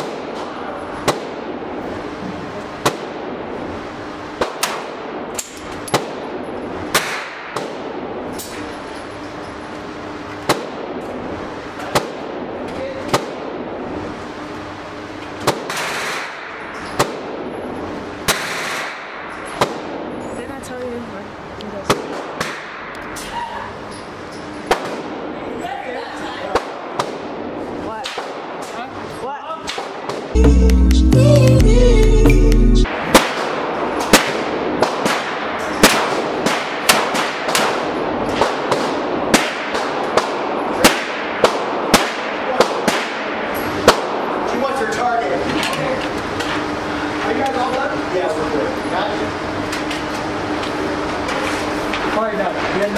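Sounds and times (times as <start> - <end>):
handgun shots echoing indoors: 6.9 - 8.6, 15.4 - 17.3, 18.2 - 20.0, 32.9 - 44.3.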